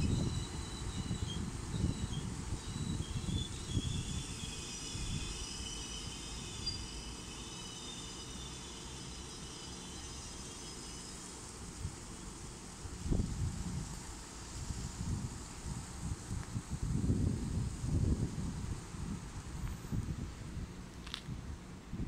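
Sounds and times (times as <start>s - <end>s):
wind on microphone: 0.0s - 5.5s, 12.9s - 22.0s
train rumbling slowly: 0.0s - 22.0s.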